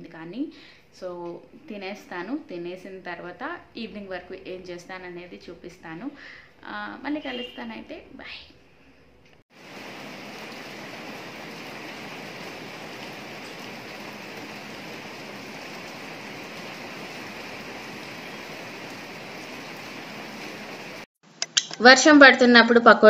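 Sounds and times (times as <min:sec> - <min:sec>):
rain on concrete roof: 0:09.5 - 0:21.1.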